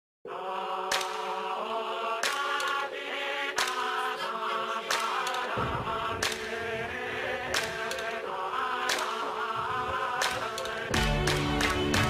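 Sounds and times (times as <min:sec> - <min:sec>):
chant-like vocals: 0:00.3 - 0:12.0
electronic music: 0:10.7 - 0:12.0.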